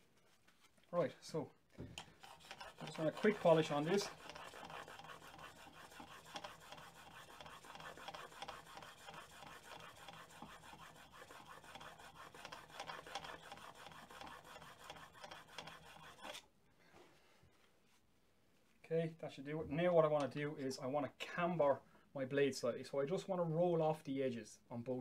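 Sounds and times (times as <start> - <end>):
blade scraping on sharpening stone: 2.2 - 16.4.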